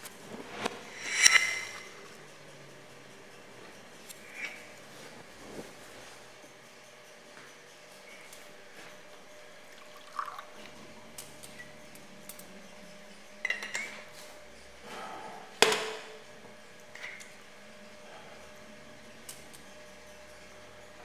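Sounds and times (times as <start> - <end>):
faint steady hum: 0.0 - 21.0
glasses clinking: 9.8 - 11.0, 13.4 - 14.1.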